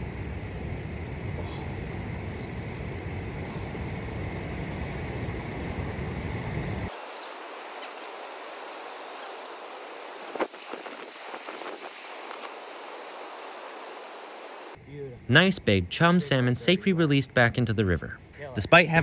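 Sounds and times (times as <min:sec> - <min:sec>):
steady hiss: 0:00.0 - 0:14.8
wind buffeting microphone: 0:00.0 - 0:14.8.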